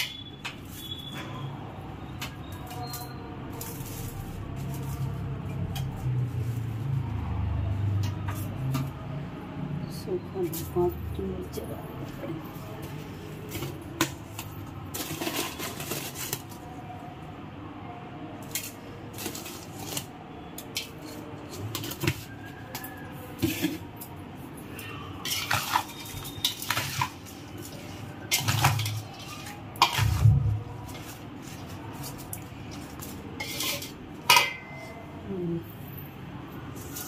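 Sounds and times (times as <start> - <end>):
spatula scraping a steel bowl: 25.2 - 35.0.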